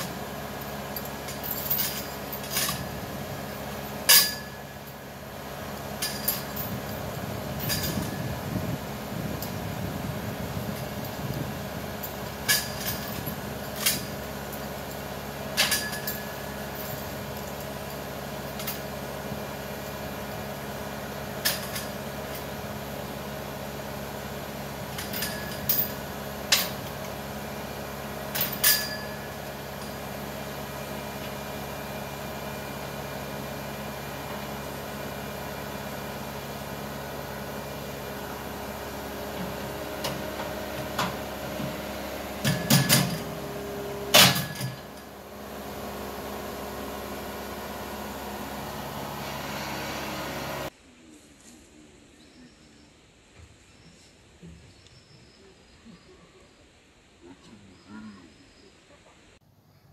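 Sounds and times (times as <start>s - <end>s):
skid steer engine idling: 0.0s - 50.7s
chain clanking against steel bucket: 0.6s - 3.0s, 4.0s - 5.0s, 6.0s - 8.3s, 12.0s - 14.8s, 15.6s - 17.7s, 24.9s - 26.8s, 28.3s - 30.0s.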